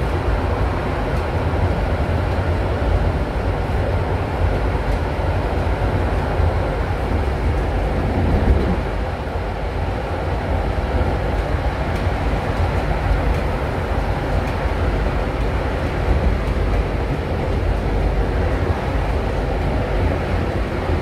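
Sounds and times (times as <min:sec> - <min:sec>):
tram wheels rumbling on rails: 0:00.0 - 0:21.0.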